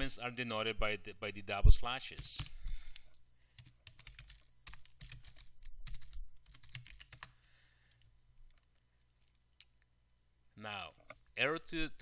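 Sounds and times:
computer keyboard typing: 0:03.6 - 0:09.9.

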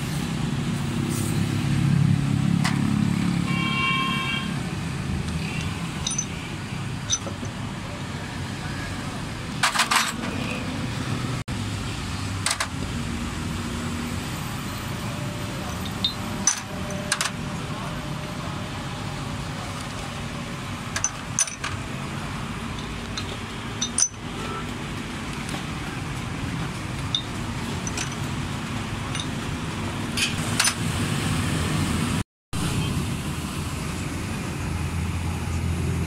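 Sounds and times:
metal tools clinking: 0:05.4 - 0:07.6, 0:09.6 - 0:10.5, 0:15.8 - 0:17.4, 0:20.9 - 0:21.9, 0:22.7 - 0:24.6, 0:27.0 - 0:28.4, 0:29.0 - 0:29.5.

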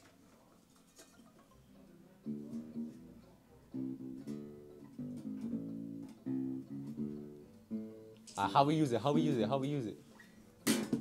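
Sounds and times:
plucked acoustic bass guitar: 0:01.6 - 0:08.2.

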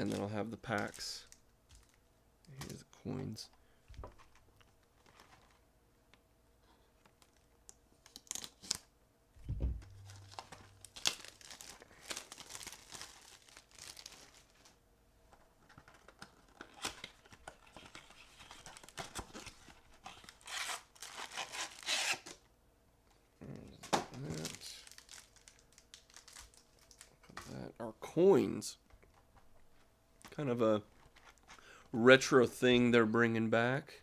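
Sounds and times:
plastic wrap crinkling and tearing: 0:07.0 - 0:08.9, 0:09.9 - 0:14.8, 0:15.7 - 0:22.4, 0:23.8 - 0:27.6
dull thump: 0:09.4 - 0:10.2.

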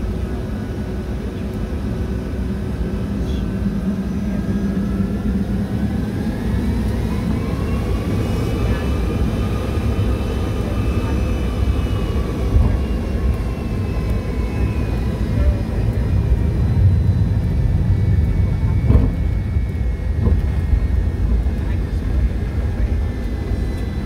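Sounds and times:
high engine whine: 0:00.0 - 0:24.0
jet engines rumbling: 0:00.0 - 0:24.0.

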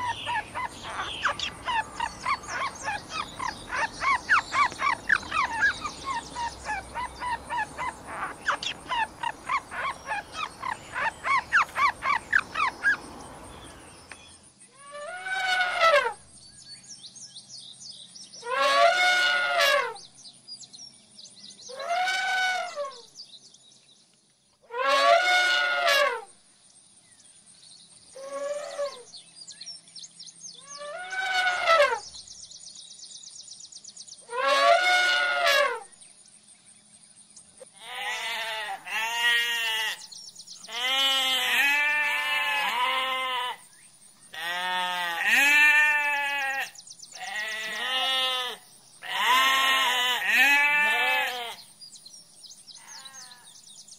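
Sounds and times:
high wavering calls: 0:00.0 - 0:13.9
lambs bleating: 0:37.8 - 0:40.0, 0:40.7 - 0:43.6, 0:44.4 - 0:51.6, 0:52.8 - 0:53.5.

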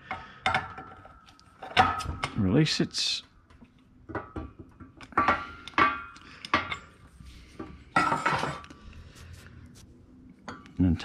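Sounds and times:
metal tools clinking and knocking: 0:00.0 - 0:02.5, 0:04.1 - 0:07.0, 0:07.9 - 0:08.7.

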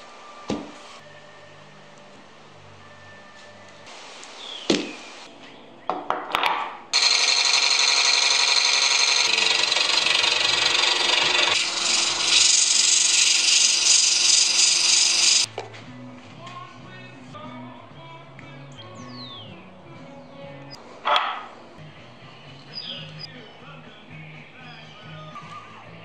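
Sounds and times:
lathe gouge cutting wood: 0:07.0 - 0:15.5
sandpaper rubbing spinning wood: 0:07.0 - 0:15.5.

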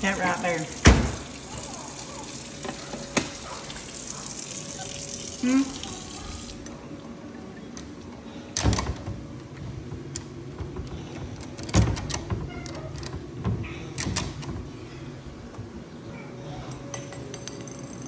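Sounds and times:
cabinet door knocks and bangs: 0:00.8 - 0:01.2.

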